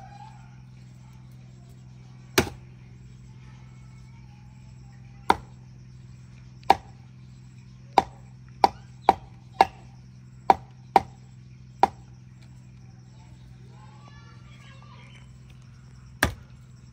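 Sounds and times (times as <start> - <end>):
steady low hum: 0.0 - 16.9
cleaver chopping meat: 2.4 - 2.6, 6.7 - 6.9, 8.0 - 9.8, 10.5 - 11.2.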